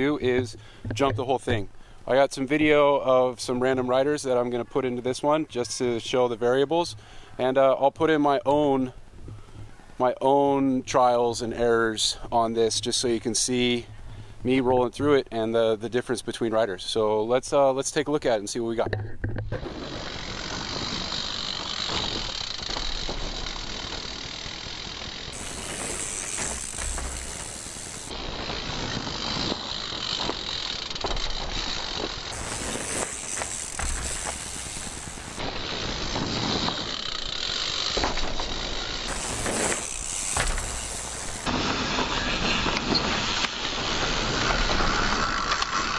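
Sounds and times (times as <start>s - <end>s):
bike tyres on dirt trail: 0.0s - 7.5s, 8.3s - 14.6s, 19.4s - 45.9s
bike clicks and rattles: 18.8s - 45.9s.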